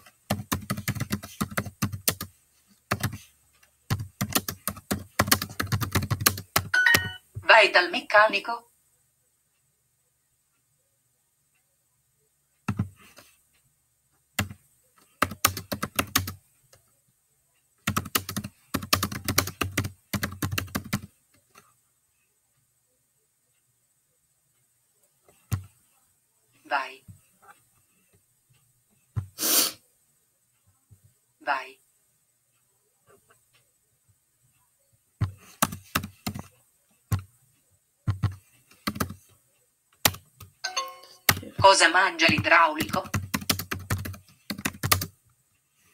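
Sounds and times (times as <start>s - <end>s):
laptop keyboard typing: 0.0s - 7.2s, 12.6s - 13.3s, 14.4s - 16.8s, 17.8s - 21.7s, 25.3s - 25.8s, 35.2s - 36.5s, 37.1s - 37.3s, 38.0s - 39.3s, 40.0s - 45.2s.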